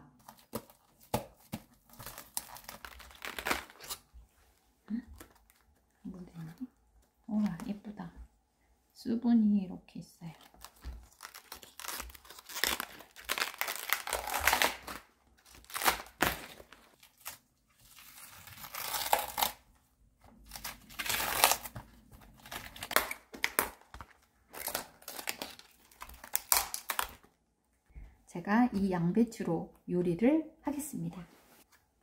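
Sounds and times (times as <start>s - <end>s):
cabbage leaves tearing: 1.9s - 4.1s, 10.6s - 19.6s, 20.5s - 23.9s.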